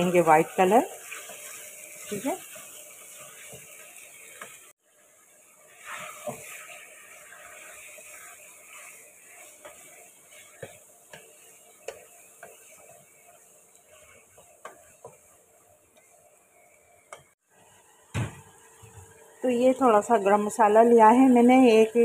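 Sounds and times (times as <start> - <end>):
chicken sizzling in oil: 0.0 - 22.0
wooden spatula scraping pan: 5.7 - 16.2.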